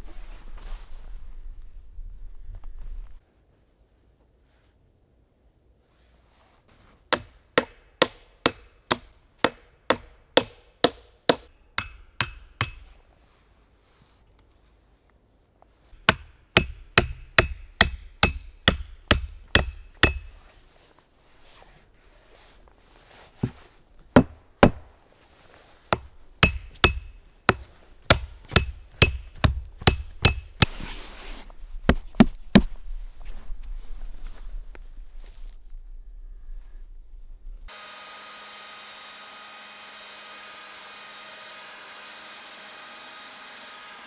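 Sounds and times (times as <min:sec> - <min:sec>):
hammer driving nails into wood: 0:07.1 - 0:12.8, 0:16.0 - 0:20.4, 0:26.0 - 0:30.8
short scrape: 0:30.6 - 0:31.5.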